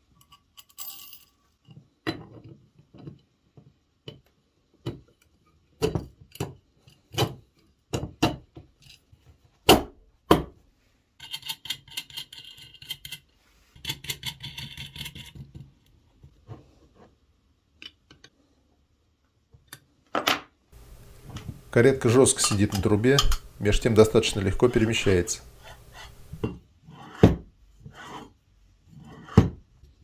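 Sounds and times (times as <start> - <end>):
metal parts clicking and knocking: 11.2 - 15.7.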